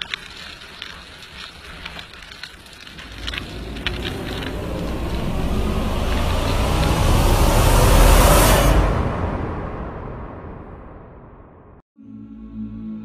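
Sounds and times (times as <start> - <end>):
crackling clicks: 0.0 - 7.2
rushing noise: 2.9 - 11.8.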